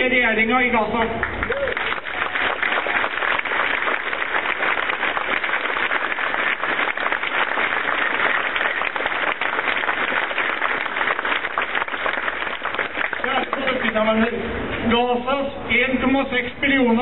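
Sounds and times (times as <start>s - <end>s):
large crowd applauding: 1.2s - 14.2s.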